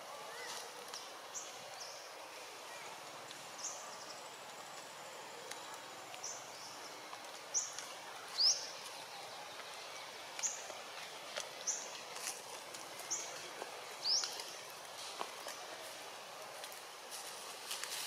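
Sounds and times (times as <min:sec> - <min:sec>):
steady outdoor hiss: 0:00.0 - 0:18.0
bird chirping: 0:13.0 - 0:14.7.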